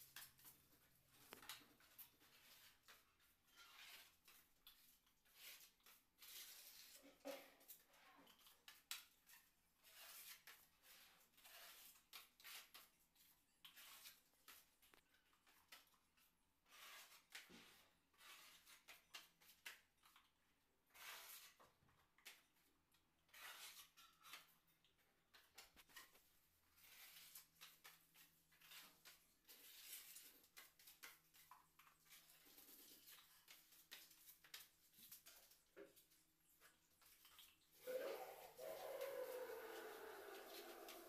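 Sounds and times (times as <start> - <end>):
putty blade scraping ceiling: 2.3 - 4.4, 9.8 - 13.0, 16.6 - 19.2, 20.9 - 21.7, 23.3 - 24.5.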